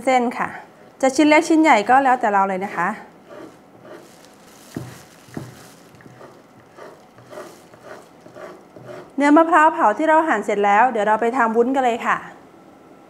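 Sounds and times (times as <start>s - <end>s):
knife slicing on cutting board: 3.3s - 9.2s
blade tapping wooden board: 4.7s - 9.2s.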